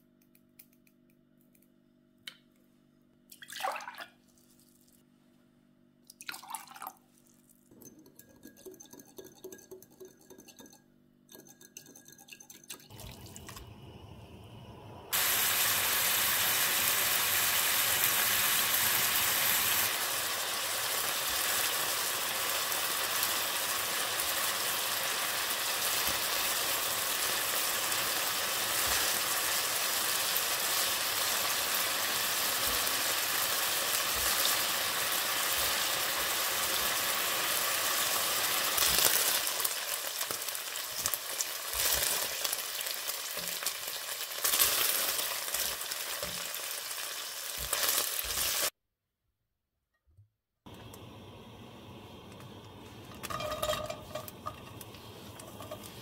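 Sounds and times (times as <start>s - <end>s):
food sizzling in a pan: 12.9s - 48.8s, 50.8s - 56.0s.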